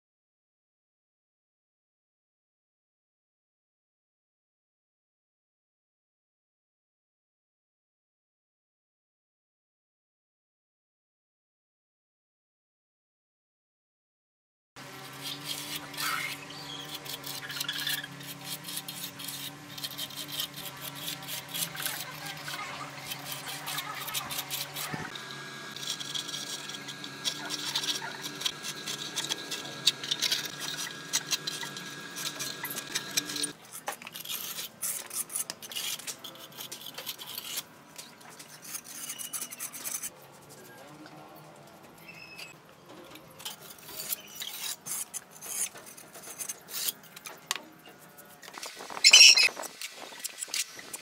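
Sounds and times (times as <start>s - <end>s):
metal clinks taps and scrapes: 49.0s - 49.5s.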